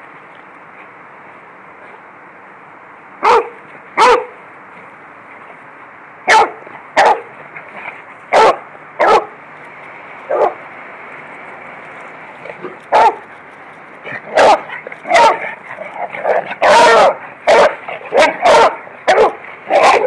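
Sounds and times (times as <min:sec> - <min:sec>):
dog barking: 0:03.2 - 0:04.4, 0:06.3 - 0:07.3, 0:08.3 - 0:09.4, 0:10.3 - 0:10.6, 0:12.9 - 0:13.2, 0:14.2 - 0:15.6, 0:16.2 - 0:20.0.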